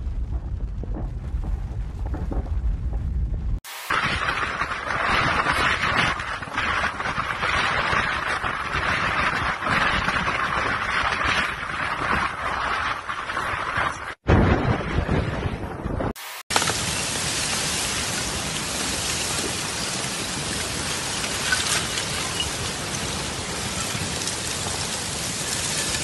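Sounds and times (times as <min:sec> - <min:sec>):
wind on microphone: 0:00.0 - 0:16.2
lake ice crunching and crackling: 0:03.9 - 0:14.2, 0:16.5 - 0:26.0.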